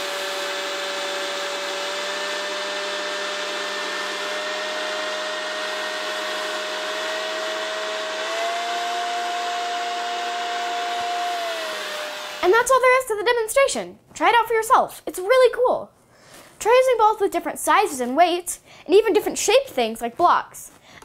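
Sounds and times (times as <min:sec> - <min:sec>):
electric leaf blower running: 0:00.0 - 0:12.4.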